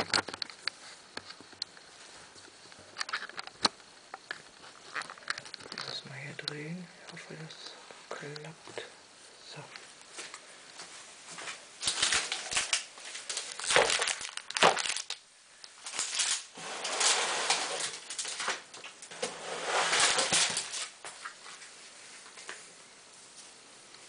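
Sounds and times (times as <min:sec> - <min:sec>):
plastic box scraping and rustling: 0:11.9 - 0:15.2, 0:15.9 - 0:21.0.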